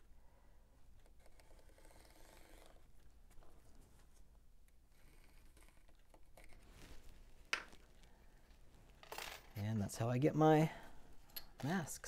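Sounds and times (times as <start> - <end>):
small handling sounds: 0.7 - 9.6.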